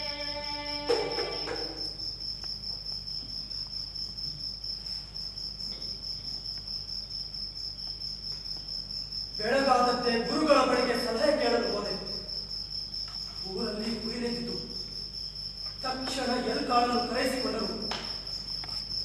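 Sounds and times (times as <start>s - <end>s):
cricket trilling: 0.0s - 19.0s
sharp knock: 0.8s - 1.9s
person speaking: 15.8s - 17.9s.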